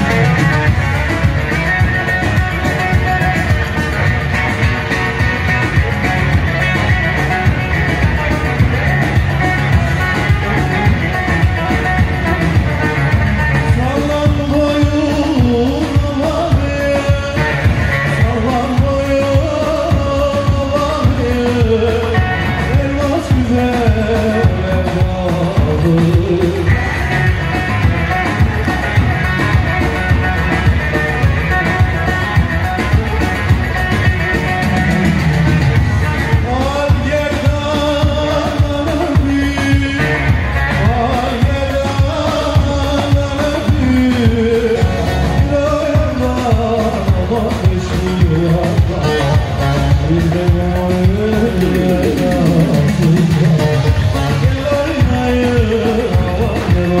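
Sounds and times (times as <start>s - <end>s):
folk band playing: 0.0s - 57.0s
person singing: 0.0s - 57.0s
steady drum beat: 0.0s - 57.0s.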